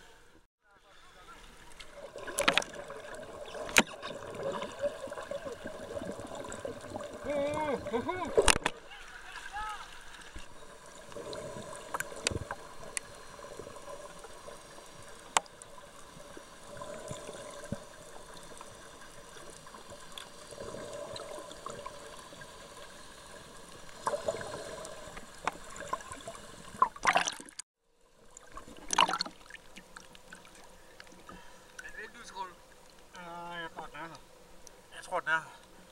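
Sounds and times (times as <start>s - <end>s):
muffled underwater noise: 0.7s - 10.0s
rushes of water noise: 1.0s - 31.9s
sharp clicks underwater: 1.7s - 4.8s, 8.2s - 8.8s, 11.1s - 13.8s, 15.2s - 15.7s, 23.9s - 27.6s.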